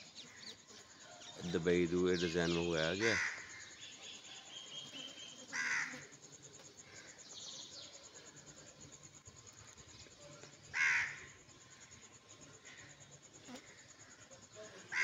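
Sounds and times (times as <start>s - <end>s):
faint outdoor background: 0.0s - 15.0s
crow cawing: 3.0s - 3.7s, 5.5s - 6.1s, 10.7s - 11.3s.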